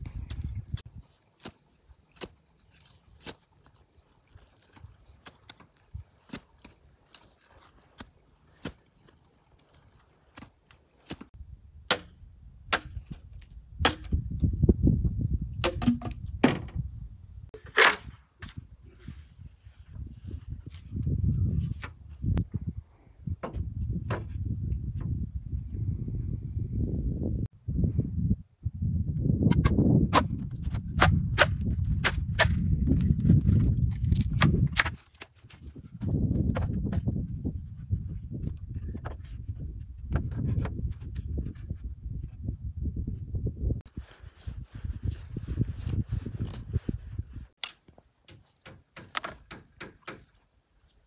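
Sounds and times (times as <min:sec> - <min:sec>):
machete chopping wood: 0:11.9 - 0:12.1, 0:12.7 - 0:13.2, 0:13.8 - 0:14.2, 0:15.6 - 0:16.6, 0:31.0 - 0:32.6, 0:48.3 - 0:50.3
bamboo pole cracking: 0:15.6 - 0:16.7, 0:47.6 - 0:50.4.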